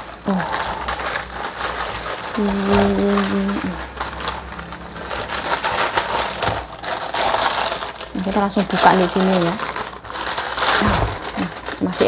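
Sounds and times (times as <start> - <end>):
plastic bag crinkling: 0.0 - 12.0
person humming: 2.4 - 3.9, 10.8 - 11.6.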